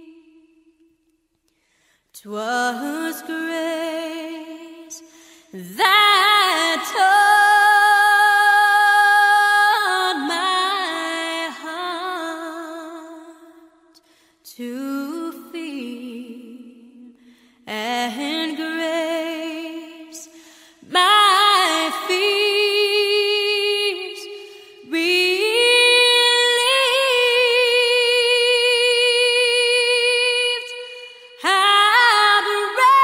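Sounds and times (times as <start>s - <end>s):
woman singing slow song: 0.0s - 0.9s, 2.1s - 33.0s.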